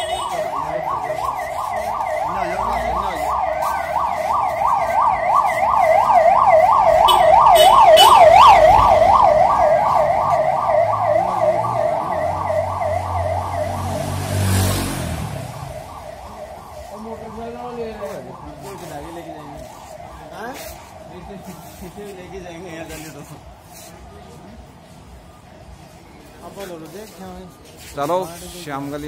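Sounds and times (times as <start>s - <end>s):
fast yelping vehicle siren: 0.0s - 21.9s.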